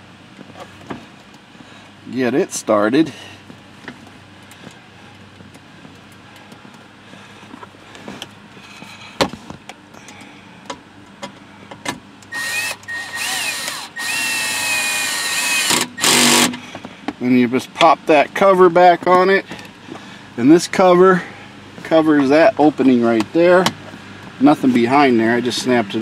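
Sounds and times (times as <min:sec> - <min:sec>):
cordless drill whining: 0:12.3 - 0:16.6.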